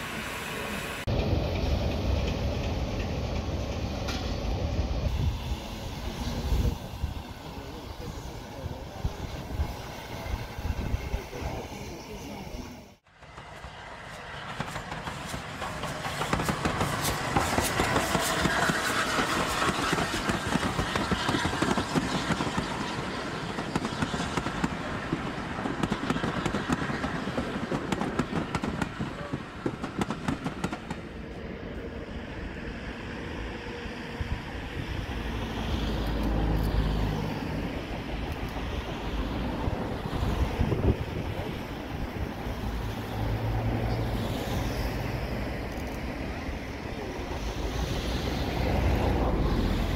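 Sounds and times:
steam train running: 0.0 - 49.9
carriages clattering over rails: 13.2 - 31.1.

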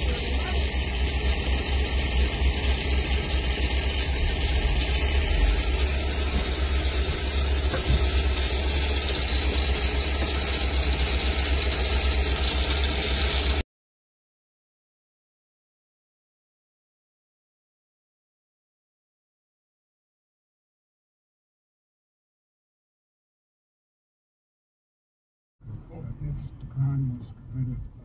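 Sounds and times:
truck engines rumbling: 0.0 - 13.6, 25.6 - 28.0.

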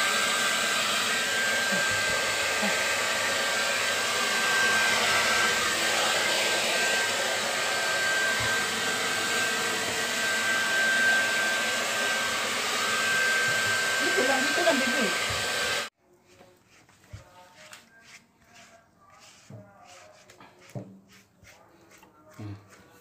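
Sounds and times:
hair dryer blowing: 0.0 - 15.9.

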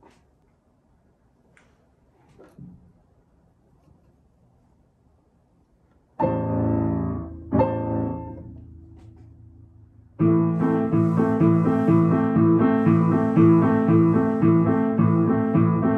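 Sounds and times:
piano chords and notes: 6.2 - 15.9.

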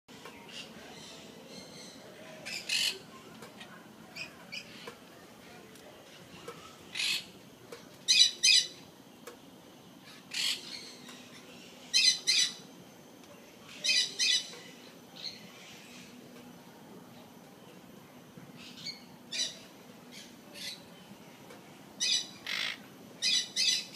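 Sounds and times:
parrots squawking: 6.9 - 7.3, 10.1 - 11.0, 22.0 - 23.9.

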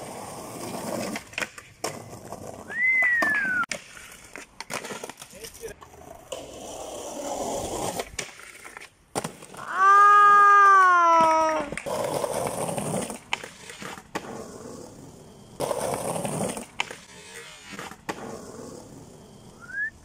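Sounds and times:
skateboard wheels rolling on pavement: 0.0 - 20.0
skateboard clacks: 0.2 - 19.5
rising whistle: 2.7 - 3.7, 19.6 - 20.0
person shouting: 9.6 - 11.8.

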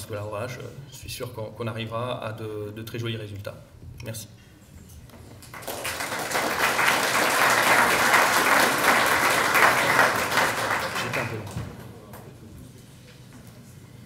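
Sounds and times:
audience applauding: 5.4 - 11.9.

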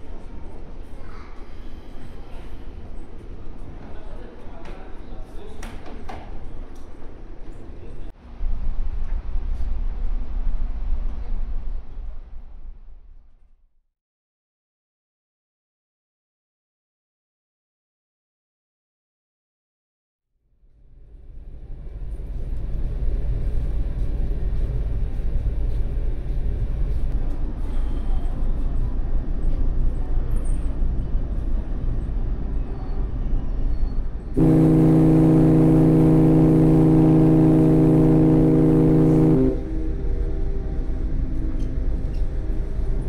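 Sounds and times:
ship's horn blast: 34.4 - 41.3.

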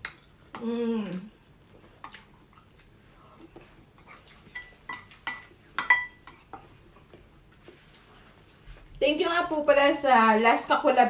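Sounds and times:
spoon clinking on ceramic bowl: 4.6 - 6.4.

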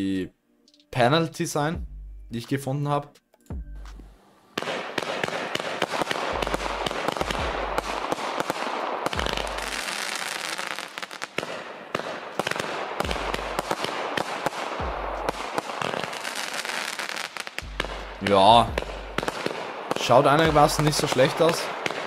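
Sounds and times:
firework launch pops and crackling: 4.6 - 18.0, 18.8 - 20.2, 20.9 - 22.0
deep firework thumps: 6.2 - 8.1, 9.0 - 9.8, 12.4 - 13.8, 14.8 - 15.4, 17.6 - 19.6
firework hiss: 9.2 - 11.4.

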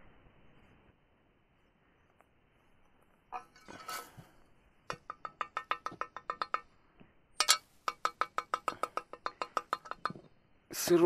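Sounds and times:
metal scrape: 3.4 - 6.6, 7.4 - 10.3
cartridge case tapping on shovel: 4.9 - 6.7, 7.4 - 10.3.

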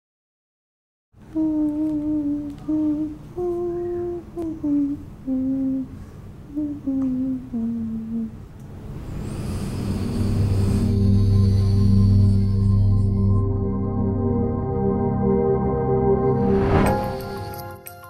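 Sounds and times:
woman humming a slow tune: 1.3 - 8.5
background music: 10.8 - 18.0.

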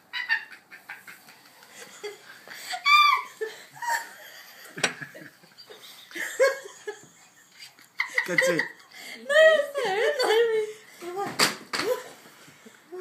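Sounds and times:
person laughing: 6.1 - 10.4.

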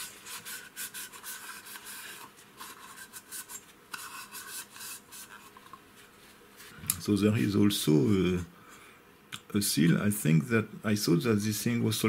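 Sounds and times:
tissue rubbing on metal: 0.0 - 6.8.

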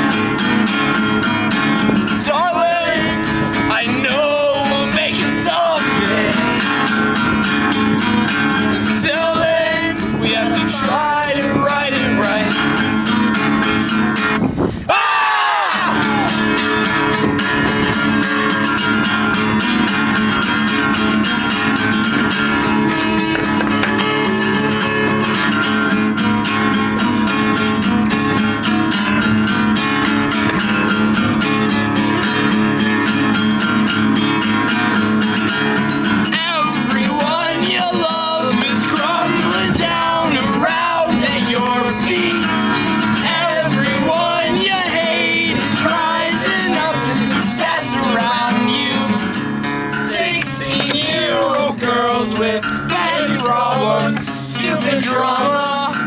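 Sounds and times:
acoustic guitar strumming: 0.0 - 15.0, 15.6 - 56.0
voices singing along: 1.6 - 13.3, 14.8 - 17.7, 36.2 - 56.0.

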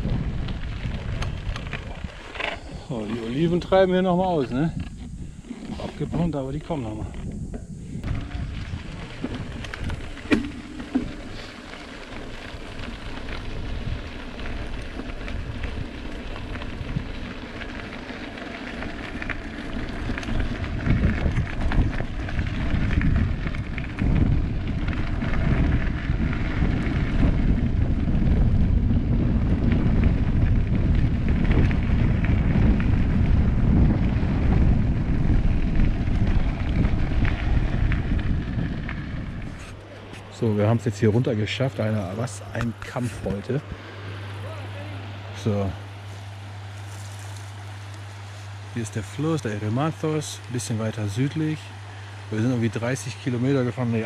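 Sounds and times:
wind buffeting microphone: 0.0 - 11.5, 12.2 - 17.9, 18.6 - 44.3
bicycle tyres rumbling on rough track: 0.0 - 54.0.

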